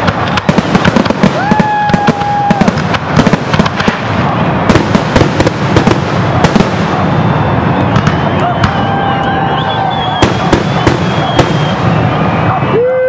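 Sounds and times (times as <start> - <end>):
fireworks bangs: 0.0 - 12.9
fireworks crackling and popping: 0.0 - 13.0
high whistle: 7.2 - 13.0.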